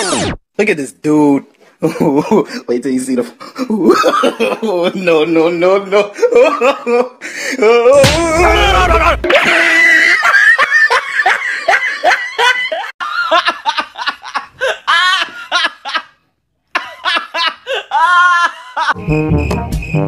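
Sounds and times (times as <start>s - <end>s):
women laughing: 8.2s - 19.0s.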